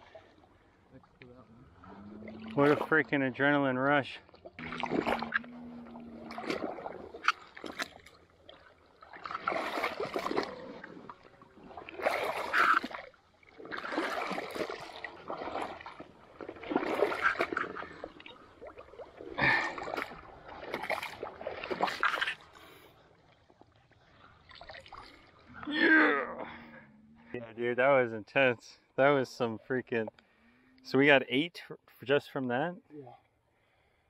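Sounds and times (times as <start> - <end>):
boots splashing through marsh water: 4.5 - 22.7.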